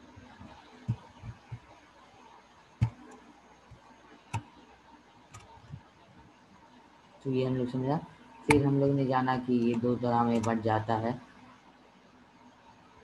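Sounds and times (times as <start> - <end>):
faint steady hiss: 0.0 - 13.0
soft low thumps: 0.2 - 1.7
computer mouse clicking: 5.3 - 5.8.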